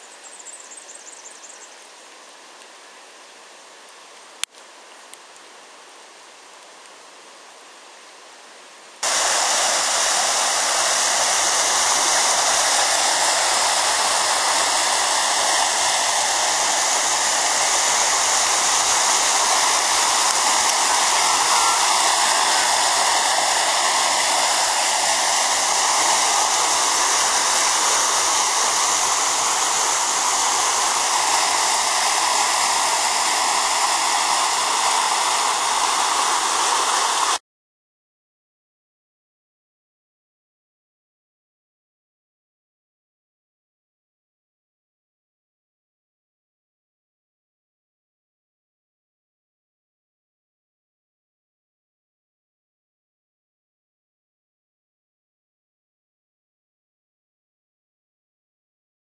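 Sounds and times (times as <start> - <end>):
water rushing in rapids: 1.8 - 37.4.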